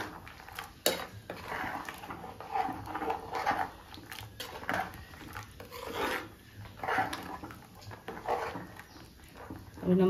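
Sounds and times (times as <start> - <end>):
ladle scraping and knocking pot: 0.0 - 10.0.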